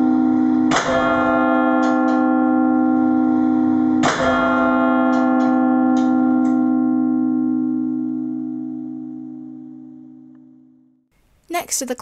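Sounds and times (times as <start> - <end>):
large bell ringing: 0.0 - 10.8.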